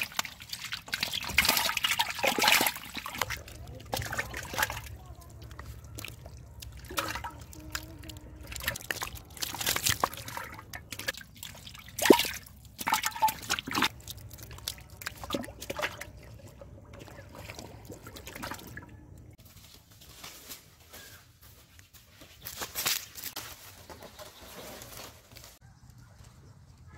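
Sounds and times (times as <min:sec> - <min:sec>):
fish flopping on wet mud: 0:00.0 - 0:18.8
drips: 0:00.0 - 0:19.4.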